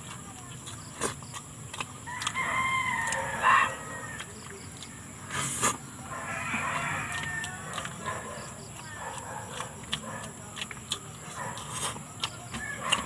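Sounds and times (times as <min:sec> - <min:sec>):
person eating with hands: 0:00.0 - 0:13.0
rooster crowing: 0:02.1 - 0:04.2, 0:06.1 - 0:07.8.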